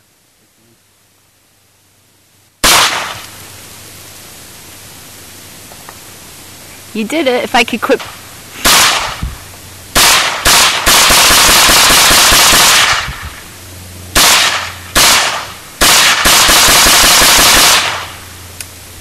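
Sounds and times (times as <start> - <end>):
rifle rapid fire: 2.6 - 3.3, 8.6 - 9.2, 9.9 - 13.3, 14.1 - 18.2.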